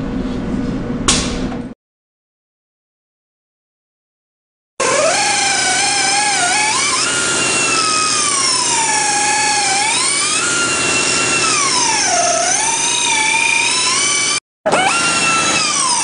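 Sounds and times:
rotary grinder cutting rubber: 4.8s - 16.0s.

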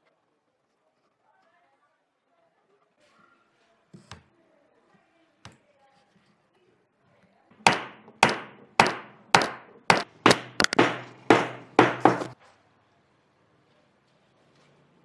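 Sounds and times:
hammer blows on wood: 7.6s - 12.4s.

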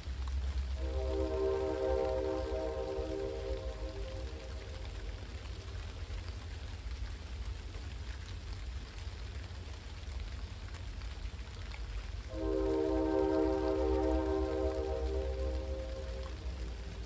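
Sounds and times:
steady rain: 0.0s - 17.0s
low rumble: 0.1s - 6.4s, 11.9s - 17.0s.

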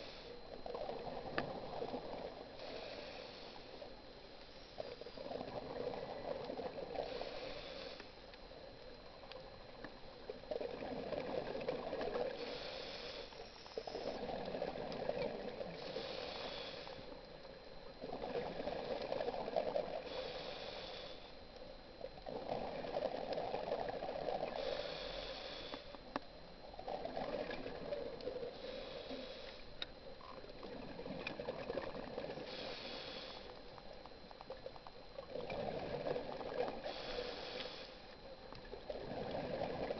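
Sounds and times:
regulator inhale hiss: 0.0s - 0.4s, 2.6s - 5.3s, 7.0s - 8.3s, 12.2s - 14.3s, 15.7s - 17.2s, 19.9s - 21.4s, 24.5s - 26.1s, 28.4s - 29.8s, 32.4s - 33.7s, 36.7s - 38.2s
exhaled bubbles gurgling: 0.0s - 4.1s, 4.8s - 7.9s, 8.6s - 12.9s, 13.9s - 21.0s, 21.8s - 25.7s, 26.4s - 37.8s, 38.4s - 39.9s.

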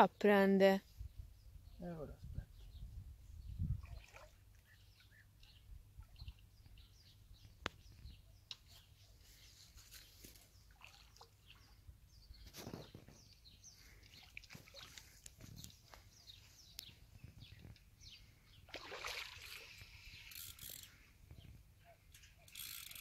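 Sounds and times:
faint bird chirps: 1.0s - 18.7s.

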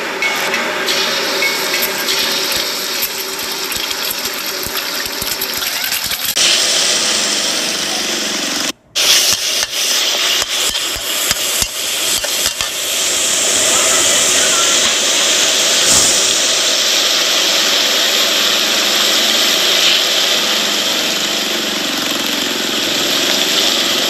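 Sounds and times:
oil sizzling in a wok: 0.0s - 24.0s.

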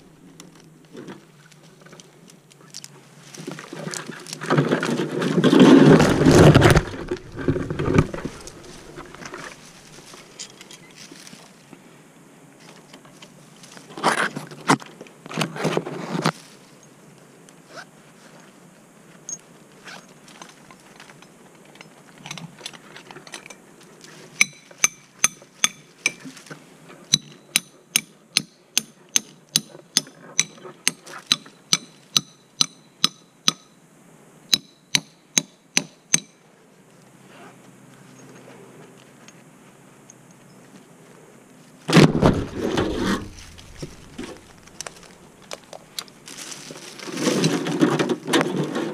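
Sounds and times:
rustling through branches: 0.0s - 12.0s, 12.6s - 21.2s, 40.6s - 48.9s.

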